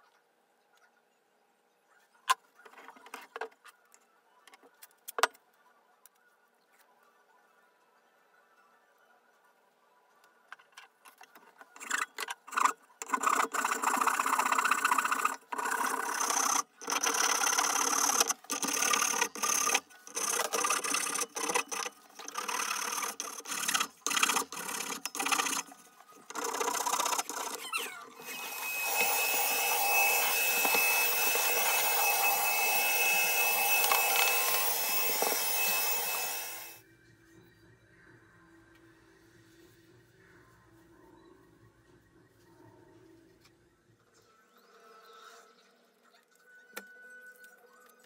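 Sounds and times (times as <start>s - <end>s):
handheld vacuum whining: 14.3s - 25.6s, 26.3s - 36.8s.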